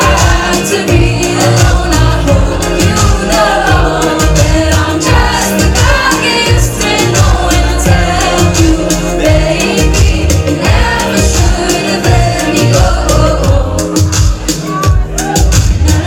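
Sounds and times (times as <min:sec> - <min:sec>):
electronic pop song: 0:00.0 - 0:16.0
low bass beat: 0:00.0 - 0:16.0
person singing: 0:00.0 - 0:16.0.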